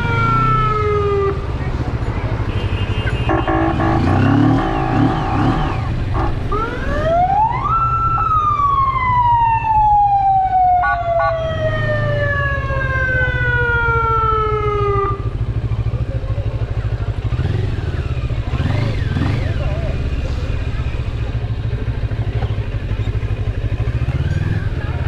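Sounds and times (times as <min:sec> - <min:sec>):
emergency vehicle siren: 0:00.0 - 0:01.5, 0:03.3 - 0:15.8
motorcycle engine running: 0:01.4 - 0:07.3, 0:15.1 - 0:25.0.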